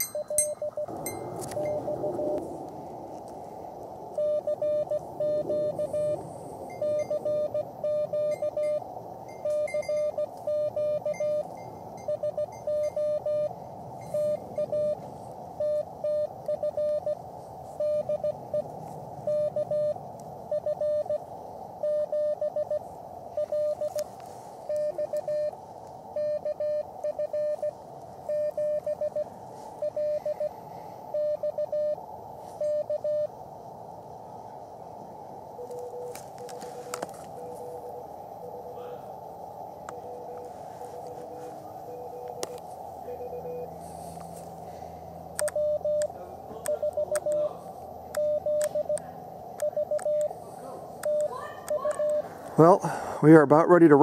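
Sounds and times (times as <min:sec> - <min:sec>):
morse code tone: 0:00.0 - 0:02.4, 0:04.2 - 0:21.2, 0:21.8 - 0:22.8, 0:23.4 - 0:24.0, 0:24.7 - 0:30.6, 0:32.6 - 0:33.3, 0:39.9 - 0:43.8, 0:45.4 - 0:46.1, 0:46.7 - 0:47.4, 0:48.1 - 0:49.0, 0:49.6 - 0:50.3, 0:51.0 - 0:52.3
radio receiver hiss: 0:00.0 - 0:11.5, 0:12.2 - 0:54.0.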